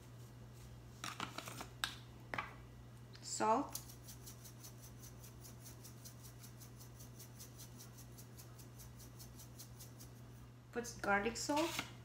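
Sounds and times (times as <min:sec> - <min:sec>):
low electrical hum: 0:00.0 - 0:12.0
salt shaker rattling: 0:03.7 - 0:10.4.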